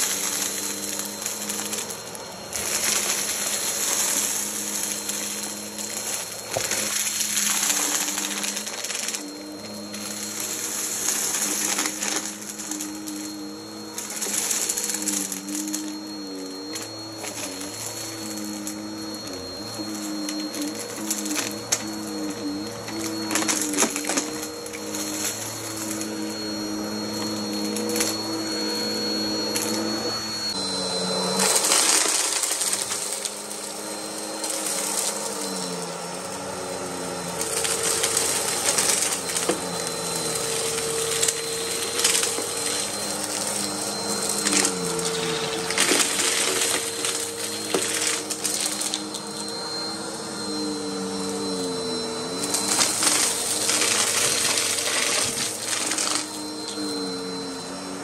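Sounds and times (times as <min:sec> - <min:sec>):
grit crackling in vacuum: 0:00.0 - 0:30.6
vacuum cleaner motor hum: 0:00.0 - 0:58.0.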